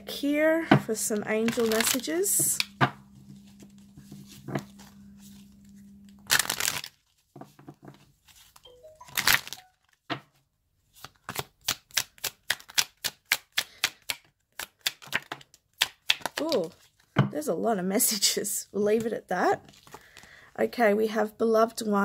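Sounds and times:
cards rustling as shuffled: 1.3 - 17.2, 18.9 - 20.4.

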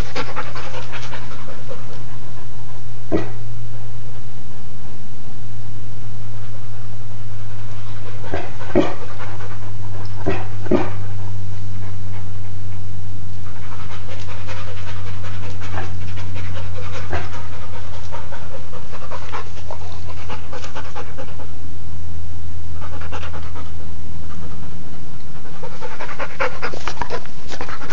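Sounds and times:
dog panting: 0.0 - 3.3, 7.4 - 11.2, 13.4 - 21.6, 22.8 - 24.7, 25.3 - 27.9
dog huffing: 0.0 - 3.4, 7.4 - 21.6, 25.3 - 27.9
steady low hum: 0.0 - 27.9.

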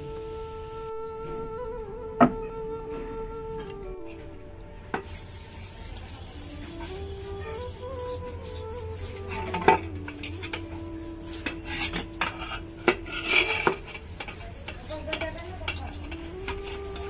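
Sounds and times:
soft background music: 0.0 - 17.0
hands scrubbing metal pot: 4.1 - 17.0.

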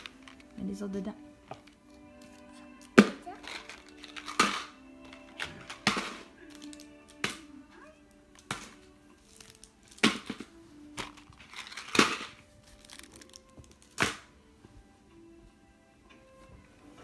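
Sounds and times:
plastic wrappers crinkling: 0.0 - 0.9, 1.6 - 7.4, 8.4 - 14.3
faint background music: 0.0 - 17.0.

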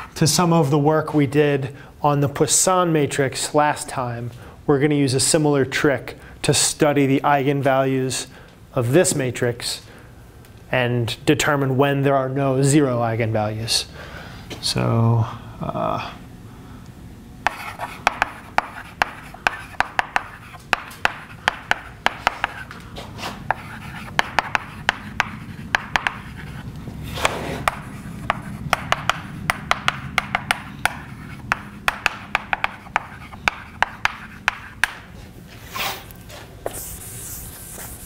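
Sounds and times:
chalk tapping and scraping on blackboard: 17.4 - 35.1, 35.8 - 38.0.

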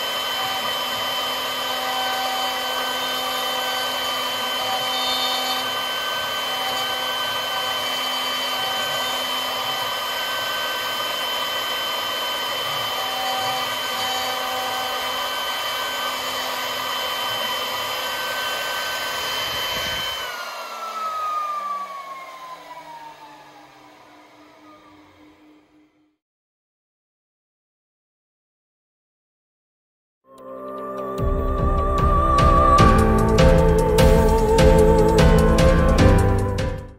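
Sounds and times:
router bit cutting wood: 0.0 - 26.2
router spindle whine: 0.0 - 26.2, 31.2 - 36.8.

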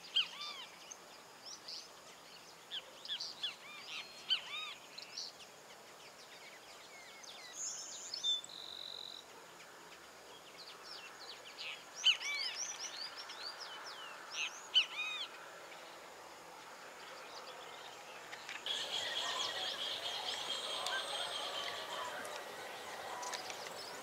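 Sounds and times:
birds chirping: 17.0 - 24.0
steady high buzz: 18.7 - 24.0.

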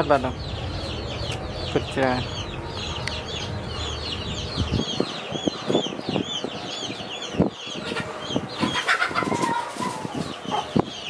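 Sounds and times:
chickens peeping: 0.0 - 11.0.

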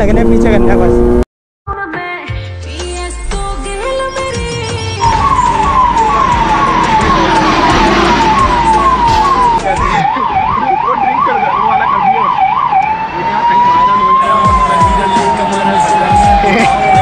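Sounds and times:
police siren: 5.0 - 17.0
traffic noise: 5.0 - 17.0.

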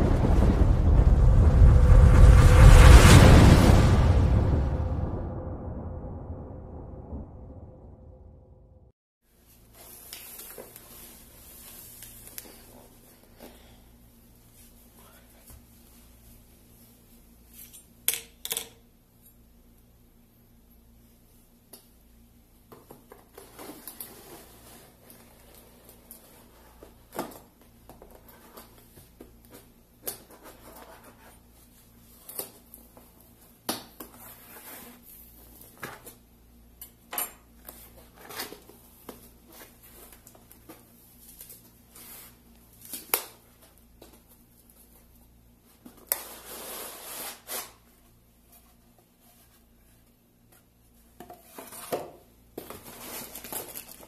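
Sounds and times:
cardboard rustling and scraping: 23.1 - 31.8, 51.3 - 54.0.

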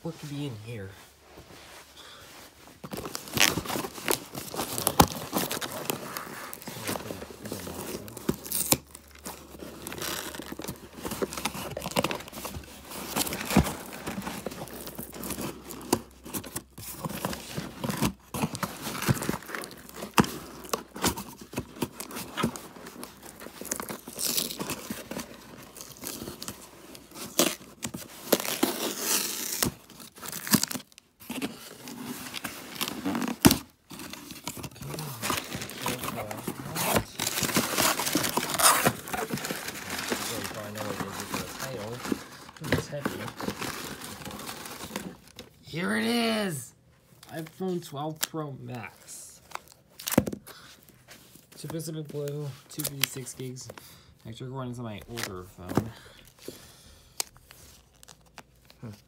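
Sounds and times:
packing tape ripping: 22.0 - 25.2, 27.2 - 31.0, 31.8 - 42.0.

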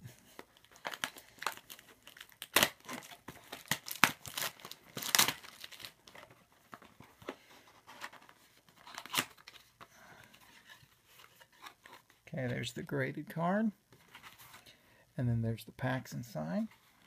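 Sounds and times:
packaging crinkling and tearing: 0.4 - 9.8.

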